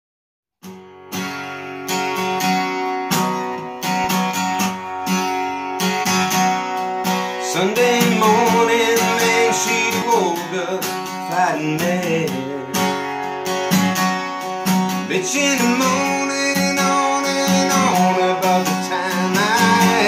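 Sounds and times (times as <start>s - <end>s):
acoustic guitar strumming chords: 0.6s - 20.0s
man singing: 7.3s - 13.1s, 15.0s - 20.0s.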